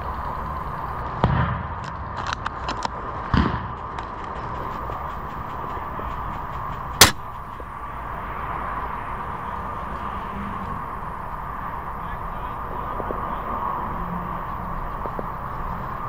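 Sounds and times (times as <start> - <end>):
outdoor hiss: 0.0 - 1.1, 4.5 - 16.0
airsoft rifle shot: 1.2 - 1.8, 3.3 - 3.7, 7.0 - 7.3
distant airsoft fire ticks: 4.0 - 7.7.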